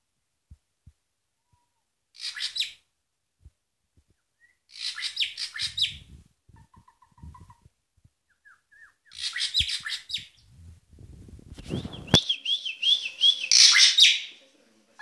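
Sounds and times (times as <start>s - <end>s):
bird singing: 8.3s - 10.5s, 11.7s - 14.4s.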